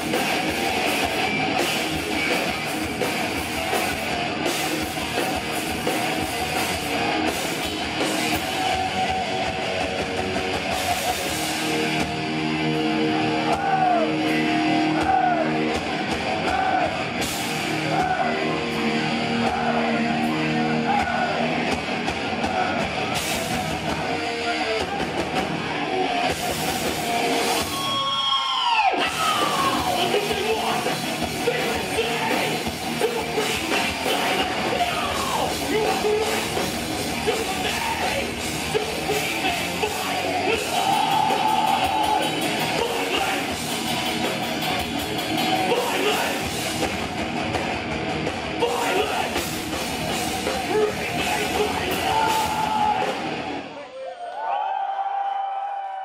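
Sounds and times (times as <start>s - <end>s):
thrash metal band playing live: 0.0s - 53.7s
shouted vocals: 8.0s - 11.4s, 12.9s - 25.3s, 27.5s - 43.7s, 45.4s - 46.6s, 48.5s - 49.5s, 50.2s - 56.0s.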